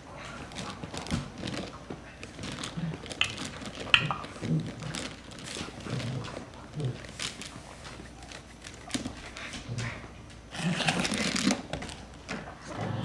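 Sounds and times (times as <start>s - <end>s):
plastic teething rings clacking: 3.2s - 4.3s.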